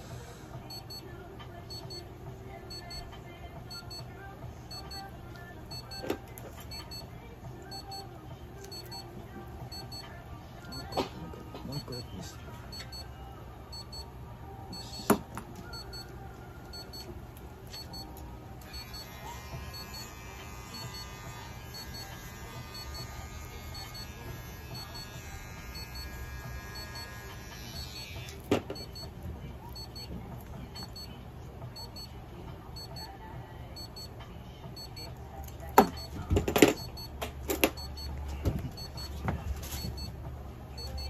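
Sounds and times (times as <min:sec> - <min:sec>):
soft electronic beep: 0:02.7 - 0:03.1, 0:04.7 - 0:05.1, 0:05.7 - 0:06.1, 0:07.7 - 0:08.0, 0:08.7 - 0:09.0, 0:09.7 - 0:10.0, 0:10.7 - 0:11.0, 0:12.7 - 0:13.1, 0:13.7 - 0:14.1, 0:14.7 - 0:16.1, 0:16.7 - 0:17.1, 0:17.7 - 0:18.1, 0:29.8 - 0:30.1, 0:30.8 - 0:31.2, 0:31.8 - 0:32.2, 0:32.8 - 0:33.2, 0:33.8 - 0:34.1, 0:34.8 - 0:35.1, 0:38.8 - 0:39.2, 0:39.8 - 0:40.2, 0:40.8 - 0:41.0.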